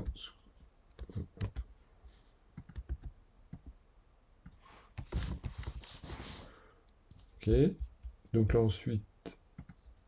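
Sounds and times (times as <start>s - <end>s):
typing on computer keyboard: 1.0s - 1.6s, 2.6s - 3.7s.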